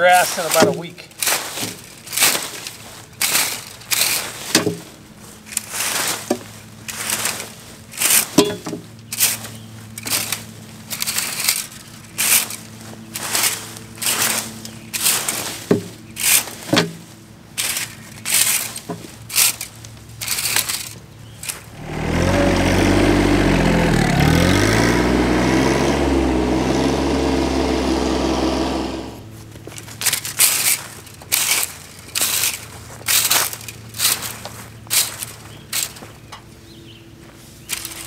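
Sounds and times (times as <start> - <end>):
loader bucket dragging leaves: 0.0 - 38.0
rake scraping soil and leaves: 0.0 - 38.0
tractor engine running: 0.0 - 38.0.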